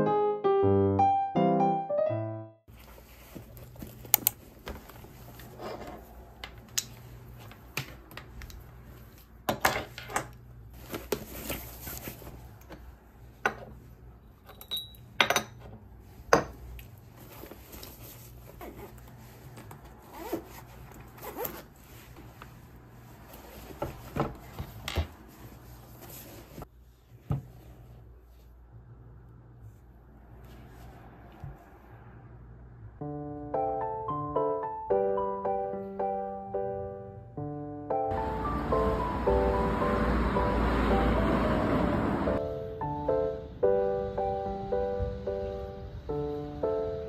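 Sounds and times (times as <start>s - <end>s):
fabric rubbing: 2.7s - 6.4s, 17.0s - 28.6s.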